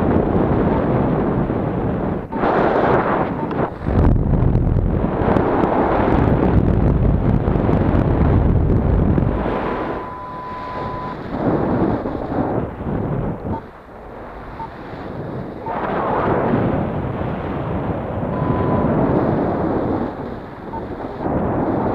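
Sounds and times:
wind buffeting microphone: 0.0 - 21.9
steady high electronic tone: 9.2 - 12.3, 18.3 - 19.4.

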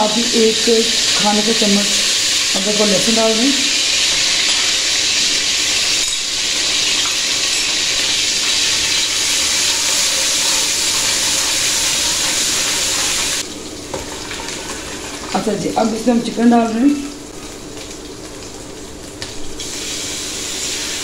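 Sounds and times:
paste sizzling in hot oil: 0.0 - 15.3, 19.6 - 21.0.

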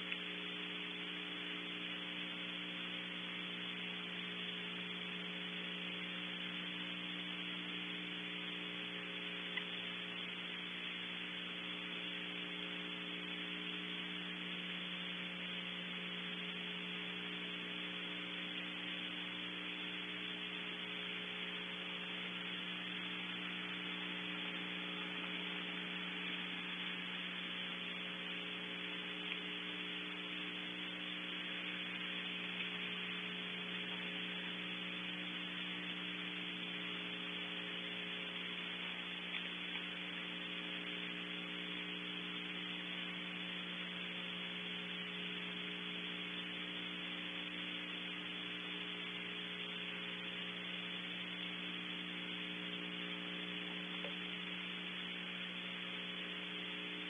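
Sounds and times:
faint ticks: 0.0 - 2.2, 7.9 - 14.3, 28.8 - 34.6, 35.6 - 43.3, 52.7 - 55.3
electrical hum and hiss: 0.0 - 57.0.

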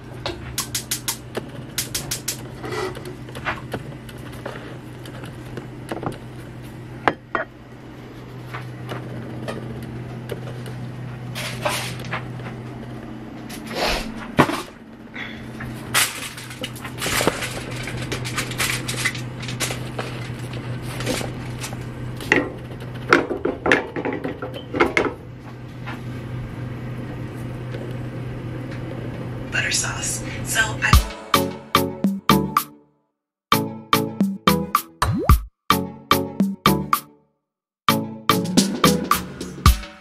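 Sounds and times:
steady low hum: 0.0 - 32.6.

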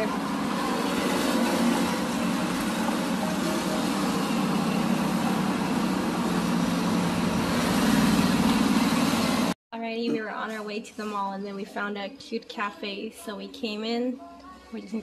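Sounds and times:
road traffic passing: 0.0 - 9.6.

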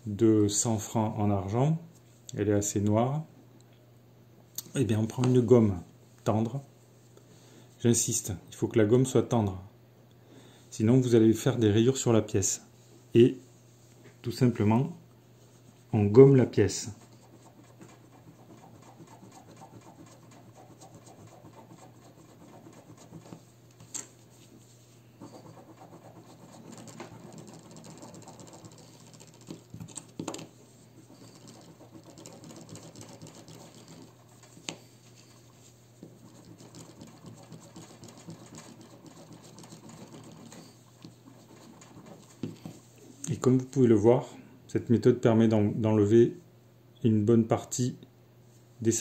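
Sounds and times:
eraser scrubbing a coin: 17.0 - 23.5, 25.2 - 30.4, 31.0 - 42.7.

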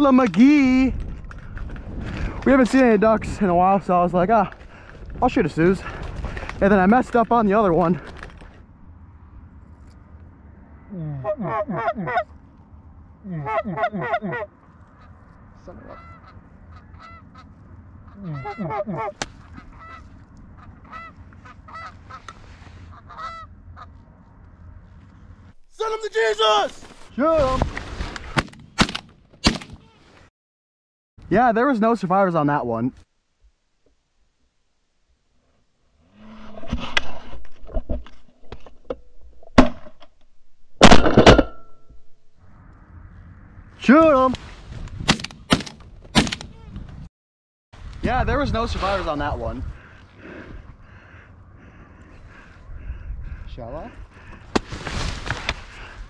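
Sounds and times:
geese honking: 11.2 - 12.3, 13.3 - 24.1
shotgun firing: 45.1 - 46.5.

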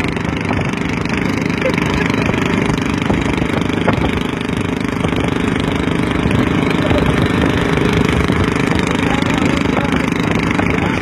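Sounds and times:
small petrol engine running: 0.0 - 11.0.

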